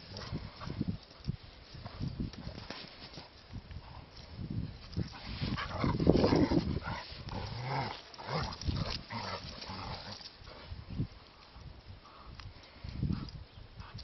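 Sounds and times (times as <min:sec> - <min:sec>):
dogs play-growling: 0:00.0 - 0:00.9, 0:05.0 - 0:10.7.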